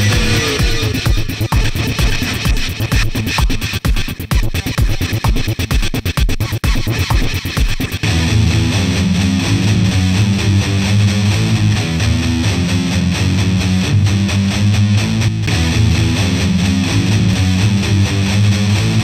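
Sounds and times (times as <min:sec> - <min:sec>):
drums: 0:00.0 - 0:10.8
heavy metal guitar riff: 0:00.0 - 0:19.0.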